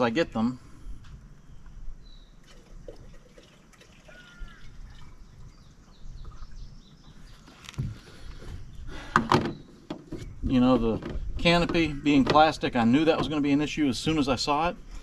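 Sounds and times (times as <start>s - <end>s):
faint bird chirps: 4.0s - 10.5s.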